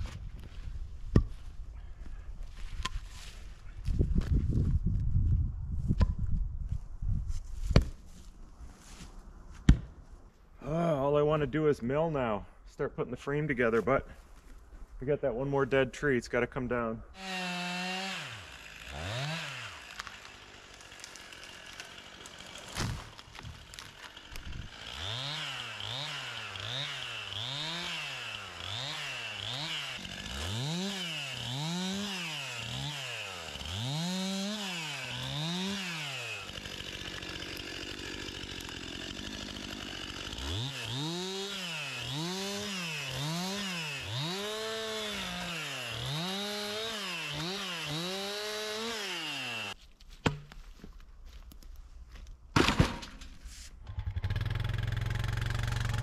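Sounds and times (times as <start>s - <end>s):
chainsaw revving while cutting: 17.2s - 22.7s, 24.0s - 49.8s, 54.0s - 56.0s.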